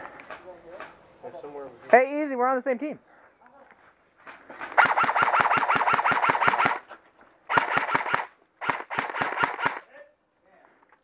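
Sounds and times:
airsoft rifle firing full-auto: 4.8 - 6.8, 7.5 - 9.9.

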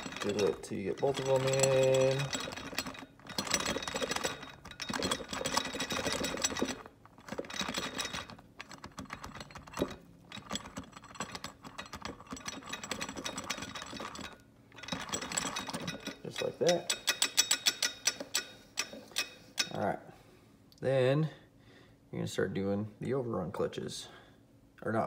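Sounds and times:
metal parts rattling and clicking: 0.0 - 19.8.

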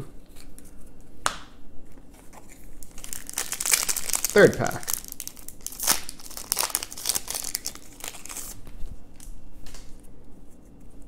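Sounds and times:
cards clicking and rustling: 2.1 - 8.6
foil wrapper crinkling: 2.1 - 10.0.

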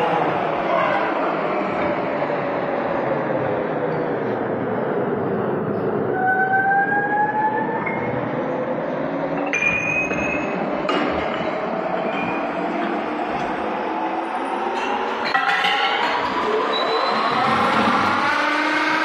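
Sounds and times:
metal-on-metal squeals: 16.7 - 17.6.

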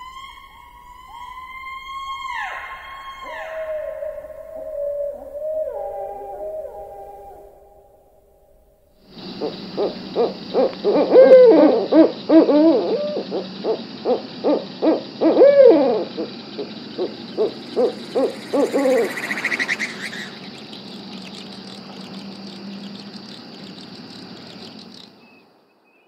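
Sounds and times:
faint hiss: 4.2 - 12.2, 13.0 - 26.0
raspy buzz: 16.1 - 25.1
animal calls rising and falling: 17.0 - 21.6.

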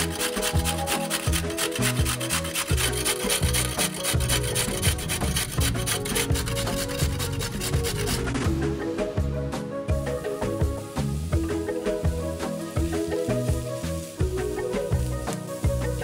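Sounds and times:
scraping on wooden cutting board: 0.0 - 8.5
background music: 0.0 - 16.0.

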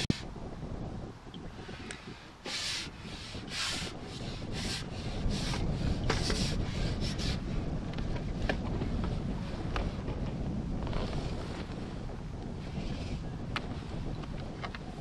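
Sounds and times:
wind rumbling on microphone: 0.0 - 15.0
short scraping rubs: 1.6 - 7.4.

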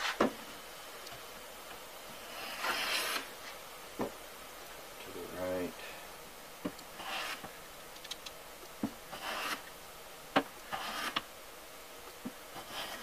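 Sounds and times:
hand plane cutting shavings: 9.2 - 9.6, 10.7 - 11.2.

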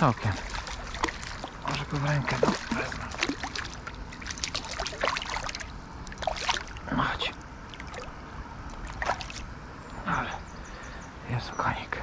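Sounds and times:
fish splashing in water: 0.0 - 6.9, 7.7 - 9.6.

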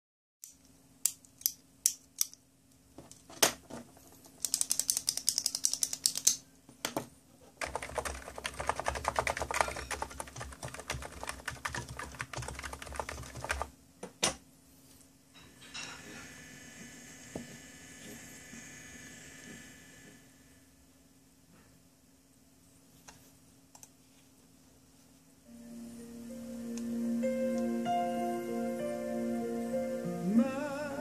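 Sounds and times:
computer keyboard typing: 4.4 - 6.4, 7.6 - 13.7.

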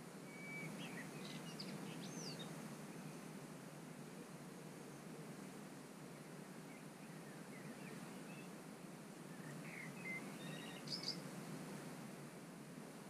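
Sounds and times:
songbirds chirping and whistling: 0.3 - 3.2, 6.6 - 8.5, 9.3 - 11.3.

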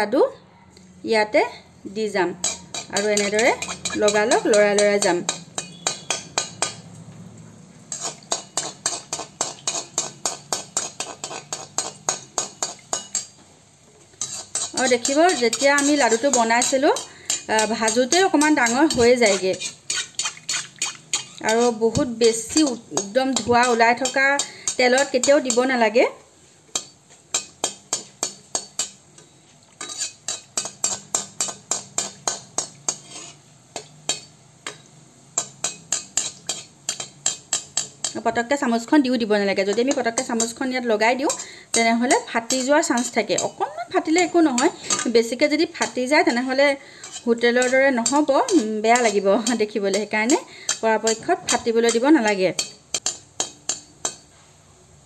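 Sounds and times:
dough balls frying in oil: 1.9 - 55.0
metal skimmer scraping a pan: 2.4 - 6.7, 7.9 - 13.4, 14.1 - 25.7, 28.7 - 34.3, 45.9 - 52.0
metal skimmer tapping metal pan: 2.4 - 6.9, 47.1 - 54.2.

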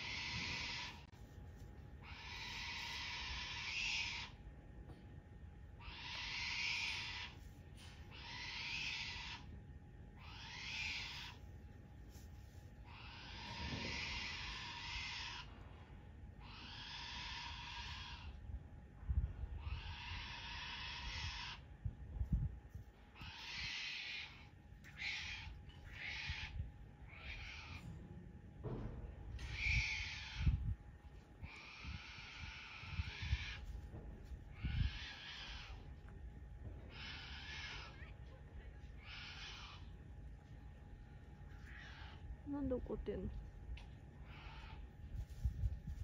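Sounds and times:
wombat hissing calls: 0.0 - 1.0, 2.0 - 4.4, 5.8 - 7.4, 8.1 - 9.5, 10.2 - 11.4, 12.9 - 15.5, 16.4 - 18.3, 19.6 - 21.6, 23.2 - 27.8, 29.5 - 30.6, 31.4 - 33.6, 34.6 - 35.8, 36.9 - 38.0, 39.0 - 39.9, 44.2 - 44.8.

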